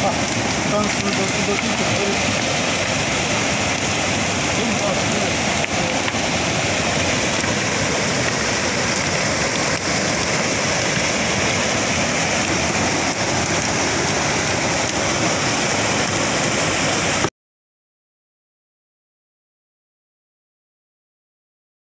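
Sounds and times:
river rapids rushing over rocks: 0:00.0 - 0:17.3.

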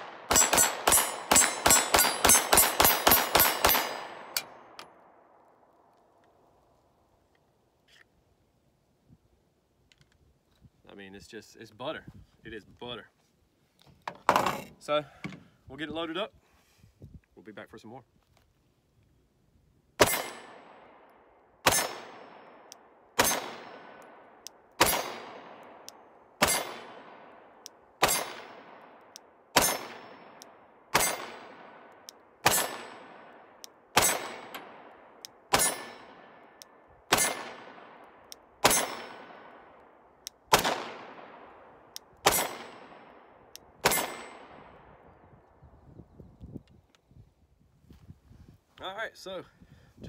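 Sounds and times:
pistol shots echoing: 0:00.0 - 0:05.2, 0:20.0 - 0:45.0.

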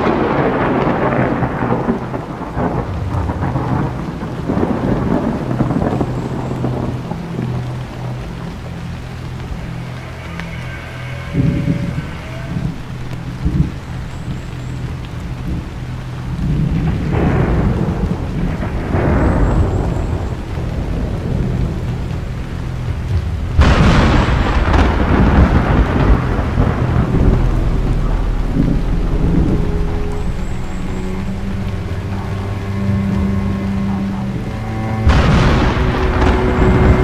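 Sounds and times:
loud thunderclap: 0:00.0 - 0:09.0, 0:15.4 - 0:37.0
rolling thunder: 0:00.0 - 0:37.0
steady rain: 0:00.0 - 0:37.0.

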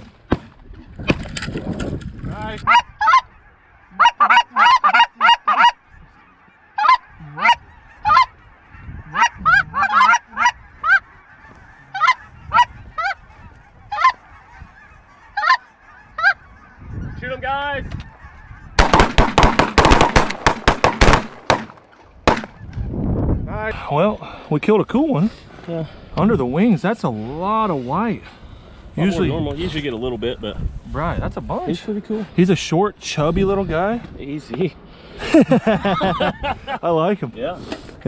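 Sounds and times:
geese honking: 0:02.4 - 0:22.9
shotgun fire: 0:18.8 - 0:22.6.

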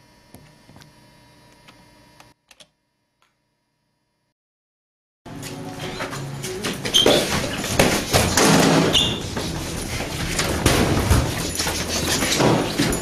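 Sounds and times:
sparring knocks and thuds: 0:06.8 - 0:13.0.

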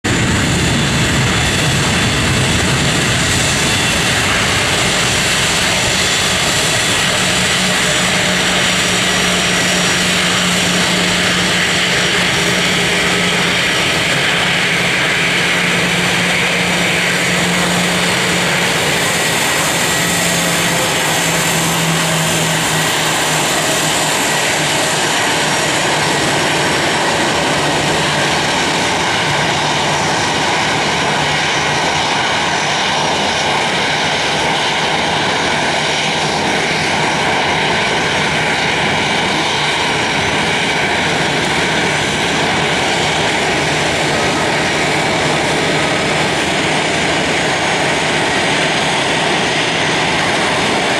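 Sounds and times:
jet engines running: 0:00.0 - 0:50.9
high whine: 0:00.1 - 0:50.9.

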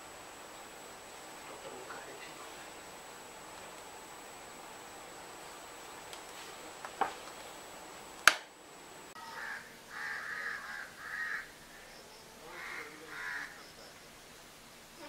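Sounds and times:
sharp click: 0:08.2 - 0:08.5
crows cawing: 0:09.2 - 0:13.7.

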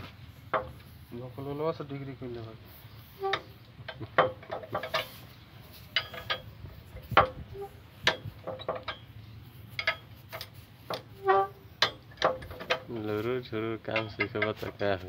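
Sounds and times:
metal tool clinking on steel: 0:05.8 - 0:06.6, 0:13.9 - 0:14.8.

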